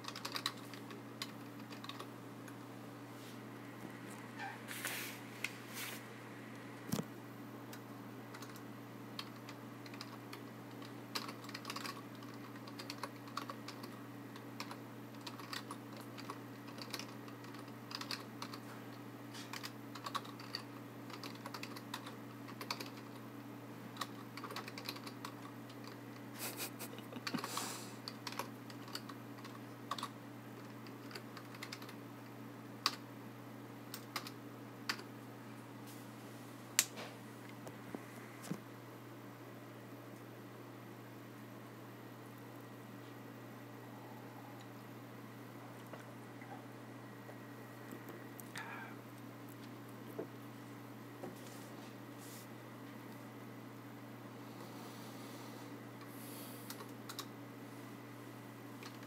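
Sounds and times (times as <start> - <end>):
keyboard typing: 0.0 - 2.1, 8.3 - 8.6, 9.2 - 18.7, 19.5 - 23.2, 23.9 - 26.0, 27.2 - 32.0, 33.9 - 35.1, 56.7 - 57.3
steady low hum: 0.0 - 59.0.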